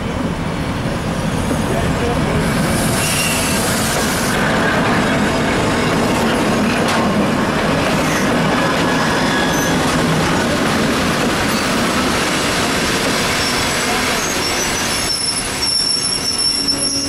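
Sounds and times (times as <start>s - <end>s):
diesel locomotive engines running: 0.0s - 17.0s
high wheel squeals: 2.9s - 3.7s, 8.9s - 9.9s, 13.3s - 17.0s.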